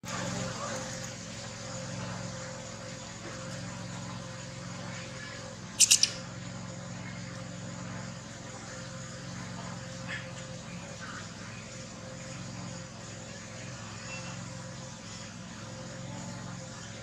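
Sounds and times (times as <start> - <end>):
steady low hum: 0.0 - 17.0
baby monkey squeaking: 5.8 - 6.3.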